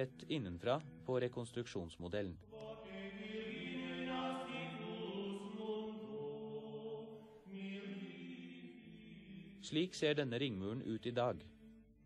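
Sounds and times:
choir chanting long held notes: 2.6s - 9.8s.

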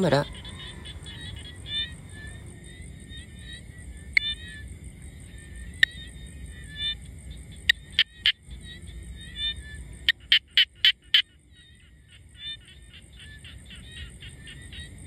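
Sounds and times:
faint chirping: 0.0s - 15.0s
frog calling: 0.0s - 15.0s
high insect whine: 0.0s - 15.0s.

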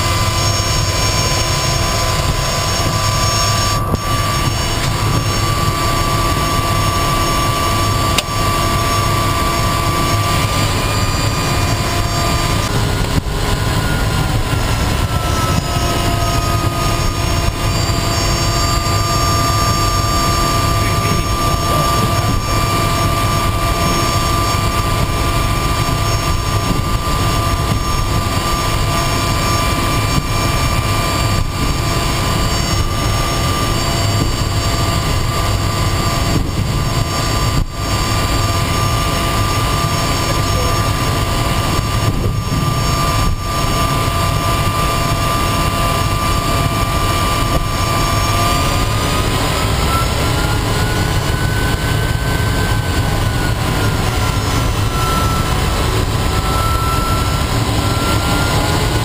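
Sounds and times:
propeller drone: 0.0s - 59.0s
turbine whine: 0.0s - 59.0s.

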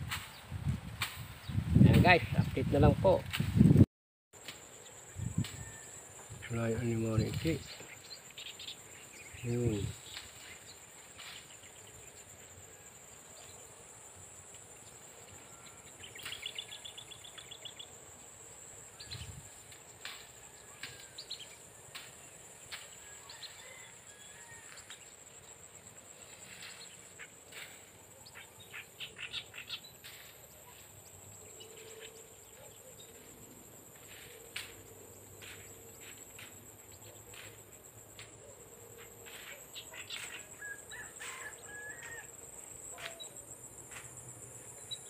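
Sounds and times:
rustles: 0.0s - 3.8s, 4.4s - 45.0s
high insect drone: 4.4s - 45.0s
bird chirps: 14.8s - 17.9s, 28.2s - 30.0s, 39.4s - 41.9s.

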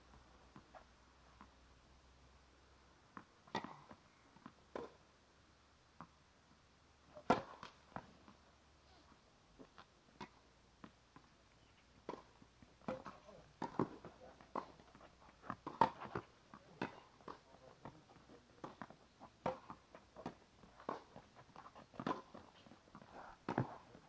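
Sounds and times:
tennis ball hitting rackets: 3.2s - 5.0s, 7.1s - 8.4s, 12.0s - 24.0s.

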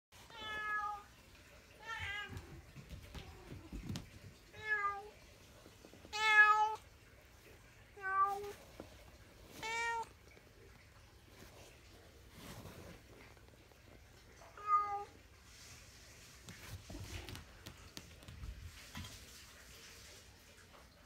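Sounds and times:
cat meowing: 6.1s - 6.8s, 9.6s - 10.1s, 14.5s - 15.2s.

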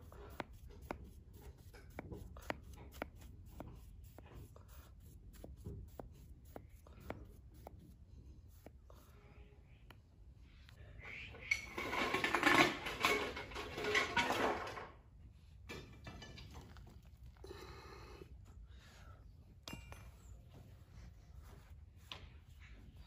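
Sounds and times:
metal tools scraping and clinking: 11.5s - 14.9s, 15.7s - 17.2s.

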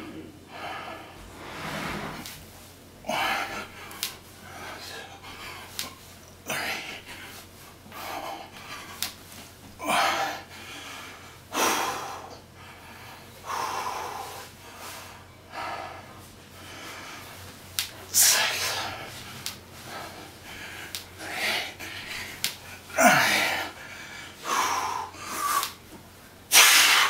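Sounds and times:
man gasping breaths: 9.8s - 17.4s, 18.1s - 25.8s.

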